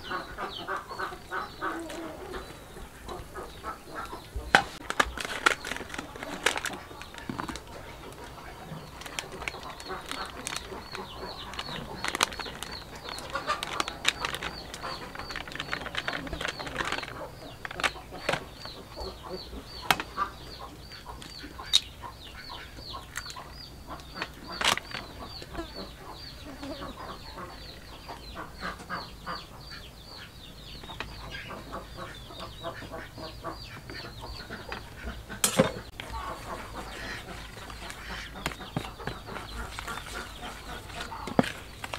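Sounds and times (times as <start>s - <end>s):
birds chirping: 0.0s - 41.9s
chickens clucking: 0.0s - 41.9s
sharp clicks and knocks: 34.7s - 41.9s.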